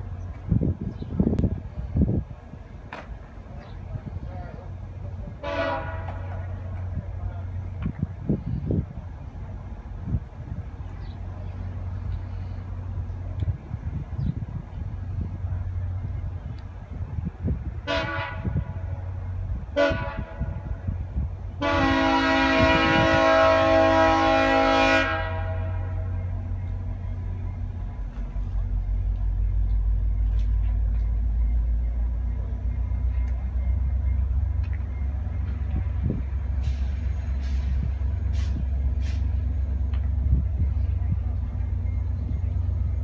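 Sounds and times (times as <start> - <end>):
train rumble: 0.0 - 43.0
locomotive horn blasts: 5.4 - 6.6, 17.8 - 19.0, 19.7 - 20.8, 21.6 - 26.2.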